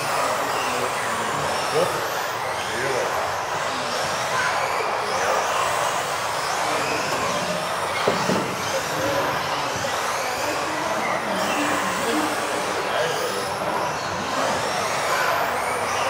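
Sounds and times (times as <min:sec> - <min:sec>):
electric motors whining: 0:00.0 - 0:16.0.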